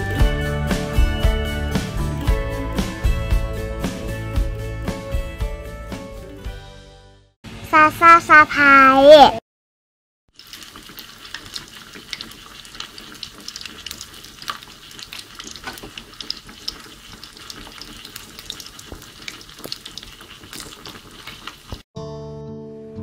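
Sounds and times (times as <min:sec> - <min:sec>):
pork frying in hot oil: 0:10.3 - 0:21.9
sharp pops and crackles: 0:10.4 - 0:21.8.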